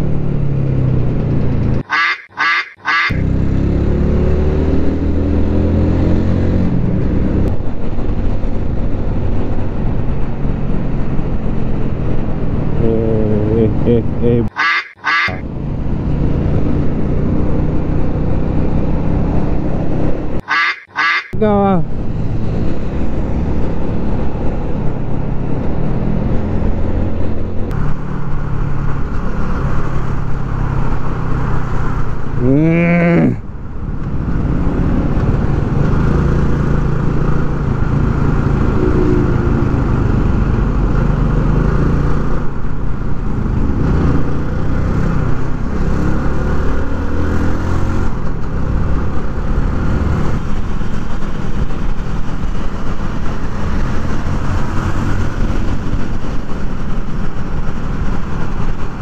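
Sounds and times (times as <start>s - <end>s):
motorcycle engine: 0.0s - 59.0s
short bending tone: 38.6s - 39.9s.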